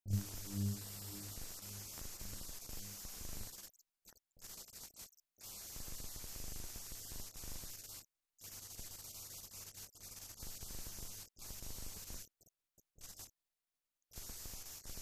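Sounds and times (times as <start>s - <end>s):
low hum: 0.0s - 3.0s
hiss and static: 0.0s - 13.4s, 14.1s - 15.0s.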